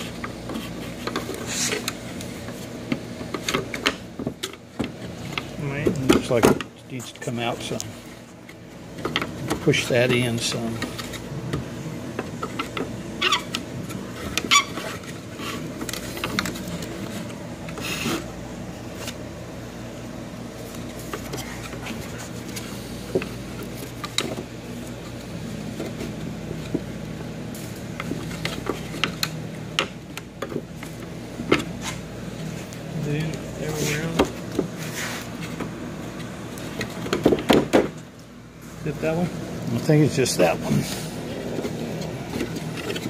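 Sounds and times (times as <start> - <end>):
plastic rubbing on plastic: 0.0 - 3.8, 7.4 - 18.3, 30.6 - 37.2
steady low hum: 0.0 - 43.0.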